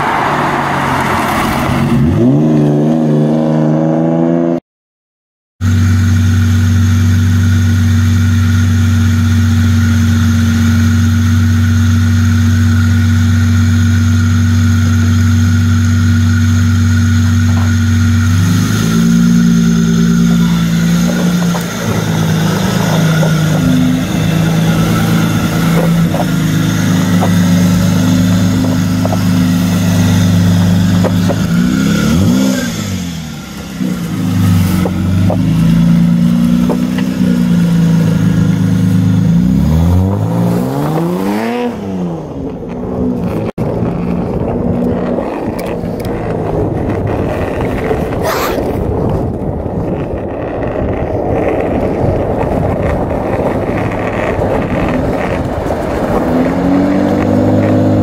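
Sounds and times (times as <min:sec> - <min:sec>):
car engine revving: 0:00.0 - 0:04.6, 0:05.6 - 0:58.0
loud car engine idling: 0:05.6 - 0:35.7.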